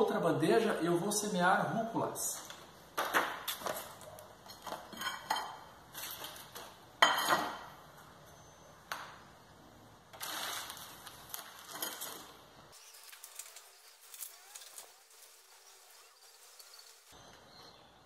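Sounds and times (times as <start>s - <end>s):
plastic rustling: 10.1s - 17.2s.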